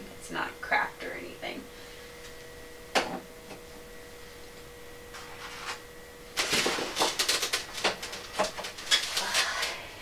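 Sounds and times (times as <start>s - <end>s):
incubator humming: 0.0s - 10.0s
rustling and clattering: 6.4s - 9.7s.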